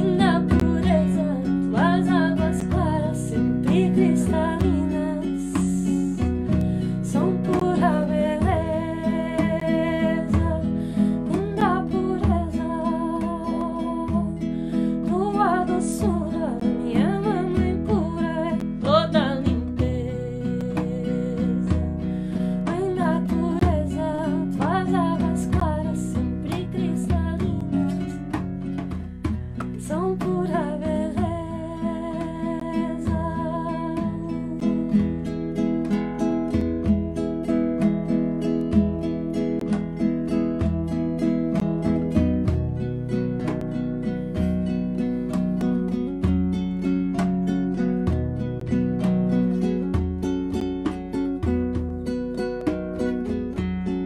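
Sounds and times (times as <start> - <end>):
woman singing: 0.0 - 36.1
acoustic guitar strumming: 0.0 - 54.0
hand drum beating: 0.0 - 54.0.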